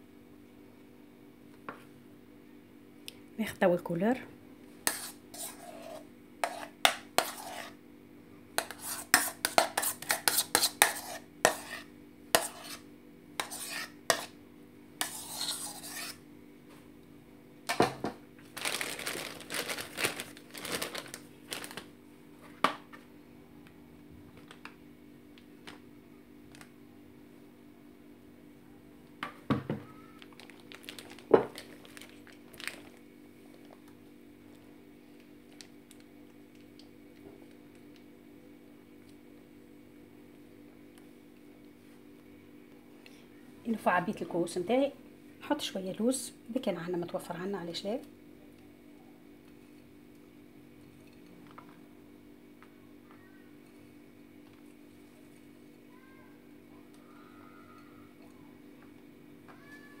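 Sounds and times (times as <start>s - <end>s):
spoon scraping mixing bowl: 4.9s - 7.8s, 8.6s - 14.4s, 15.0s - 16.2s
plastic bag crinkling: 18.4s - 22.0s, 30.2s - 33.8s.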